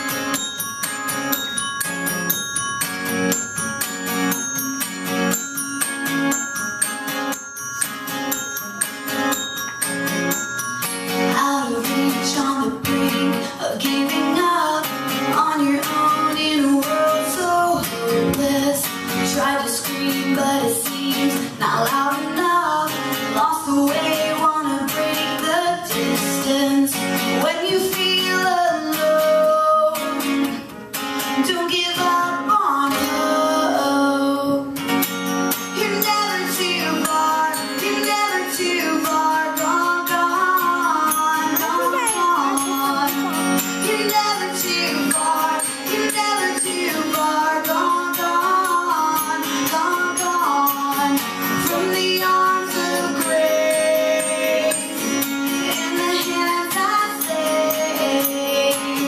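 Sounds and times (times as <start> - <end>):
acoustic guitar strumming: 0.0 - 59.0
keyboard: 0.0 - 59.0
woman singing: 11.2 - 34.8, 35.7 - 59.0.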